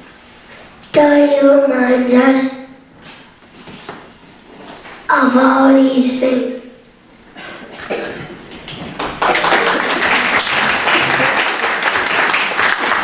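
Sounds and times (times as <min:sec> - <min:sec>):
audience applauding: 0:08.6 - 0:13.0.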